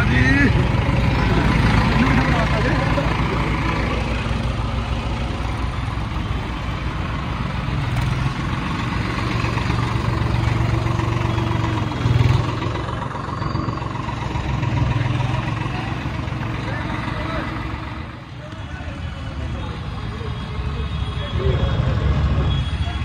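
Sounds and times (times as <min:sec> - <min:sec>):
diesel tractor engine running: 0:00.0 - 0:20.4.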